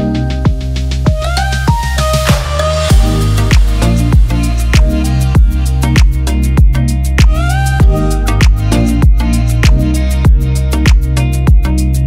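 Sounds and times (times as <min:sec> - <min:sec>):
electronic music with kick drum: 0:00.0 - 0:12.0.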